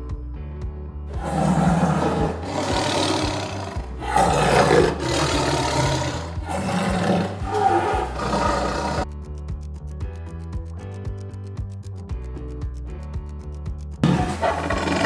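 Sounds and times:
low background music: 0.0s - 15.0s
tiger roaring: 1.2s - 9.0s, 14.0s - 15.0s.

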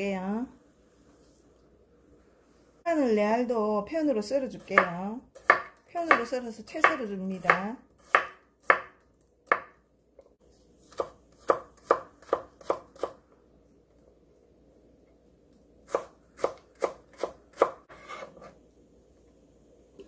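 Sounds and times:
knife chopping on wooden board: 4.8s - 9.8s, 10.9s - 13.2s.

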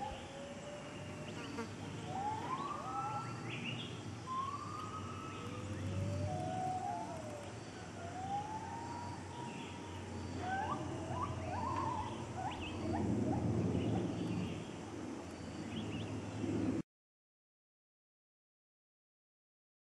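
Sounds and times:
gibbons whooping: 5.3s - 13.2s.

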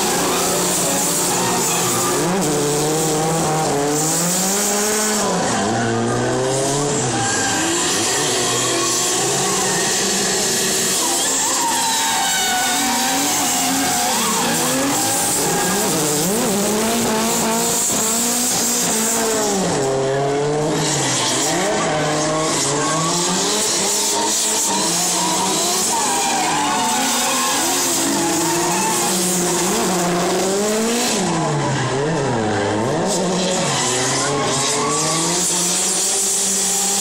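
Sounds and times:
tyres squealing: 0.0s - 3.3s, 6.9s - 18.6s, 20.9s - 31.4s
car engines revving: 0.0s - 37.0s.

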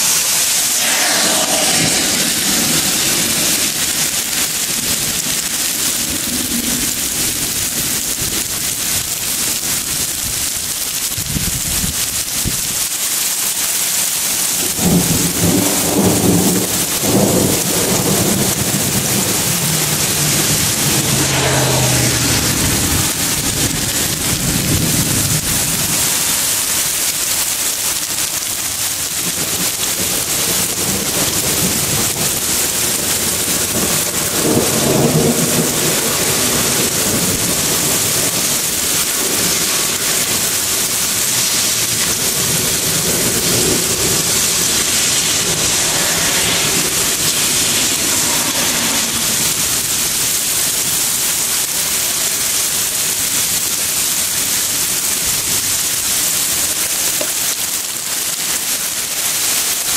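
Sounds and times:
heavy rain pouring: 0.0s - 59.9s
thunder rumbling: 0.4s - 10.0s, 14.6s - 26.4s, 29.1s - 51.1s.

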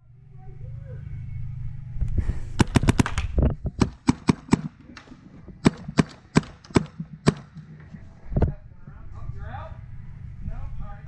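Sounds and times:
low steady rumble: 0.0s - 11.0s
paintball markers firing: 2.6s - 8.0s.

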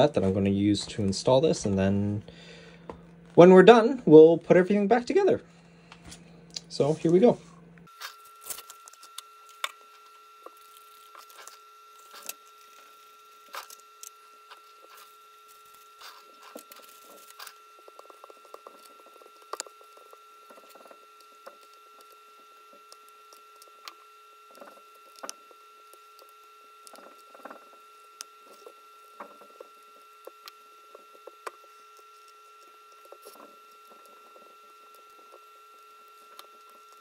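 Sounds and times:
faint steady hum: 0.0s - 37.0s
plastic film clicks and crinkles: 7.9s - 37.0s.

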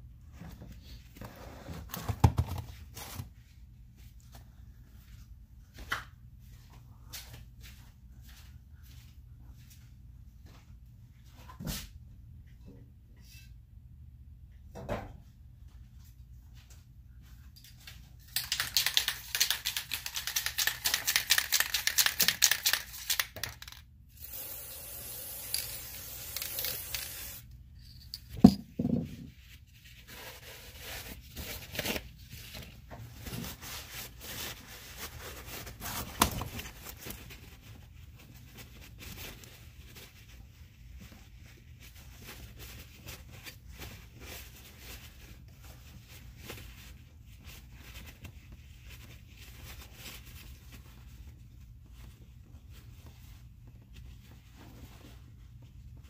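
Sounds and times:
spray cleaner hissing: 24.2s - 27.4s.

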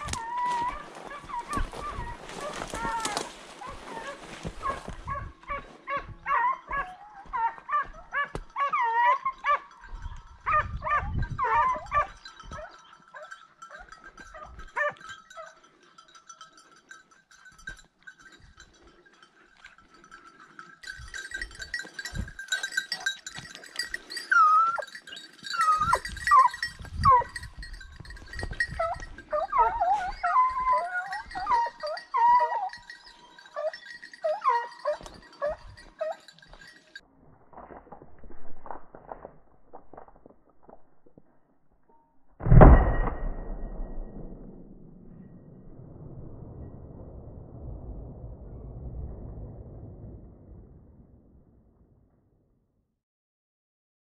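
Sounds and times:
hunting dogs baying: 0.0s - 37.0s
high jingling: 6.3s - 37.3s.

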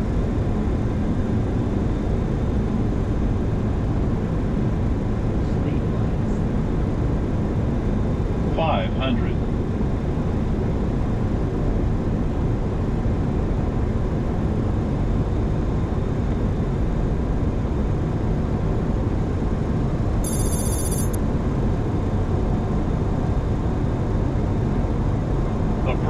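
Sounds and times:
cockpit airflow and engine noise: 0.0s - 26.0s
high-pitched ringing trill: 20.2s - 21.2s.

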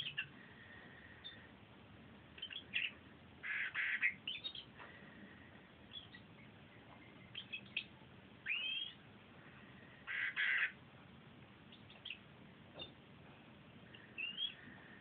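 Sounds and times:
canary chirping: 0.0s - 1.5s, 2.3s - 4.8s, 5.8s - 9.1s, 10.0s - 10.8s, 11.6s - 13.0s, 13.9s - 15.0s.

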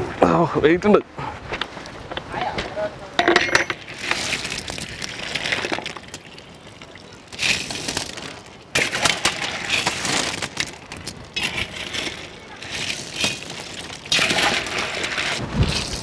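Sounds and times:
clam shells clattering: 3.2s - 16.0s.

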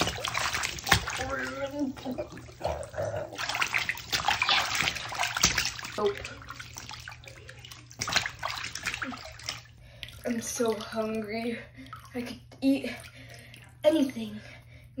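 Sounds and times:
water splashing in a bowl: 0.0s - 13.9s.

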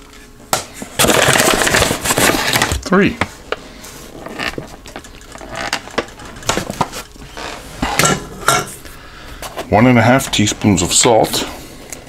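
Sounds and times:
utensils knocking and clicking: 4.6s - 8.7s.

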